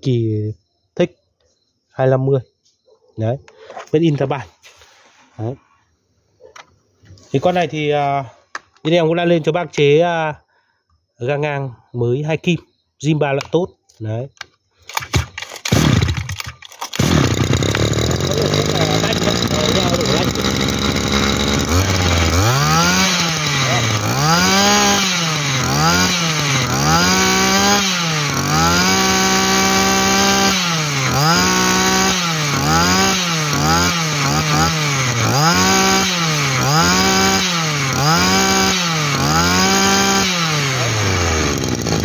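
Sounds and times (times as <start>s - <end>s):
brush cutter engine revving: 14.8s - 42.0s.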